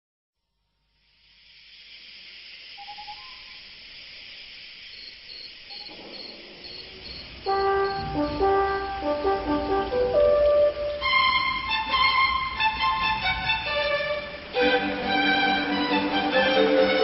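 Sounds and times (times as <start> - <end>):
steady hiss: 0.4 - 17.0
faint insect-like chirps: 0.7 - 9.2
music with brass: 7.5 - 17.0.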